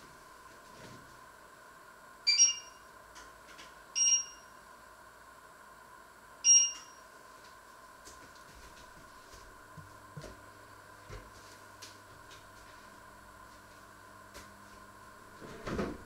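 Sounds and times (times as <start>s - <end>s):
two-tone electronic beeps: 2.3s - 2.8s, 4.0s - 4.5s, 6.5s - 7.0s.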